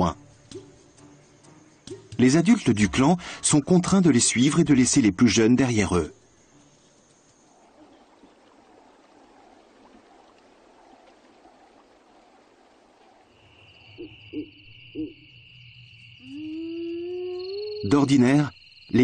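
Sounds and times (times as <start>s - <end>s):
high insect trill: 0.0s - 8.1s, 11.8s - 19.0s
hyenas hooting and calling: 13.9s - 15.3s.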